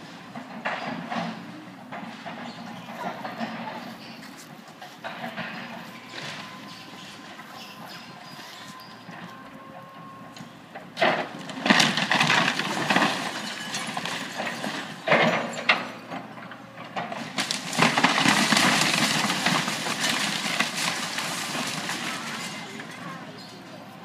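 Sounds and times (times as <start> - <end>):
timber cracking and crashing: 11.0 - 15.5, 17.0 - 23.2.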